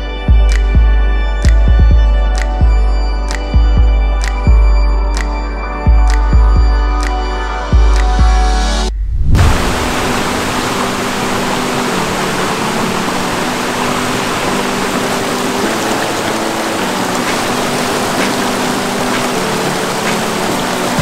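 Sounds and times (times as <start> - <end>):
stream splashing over rocks: 9.4 - 21.0.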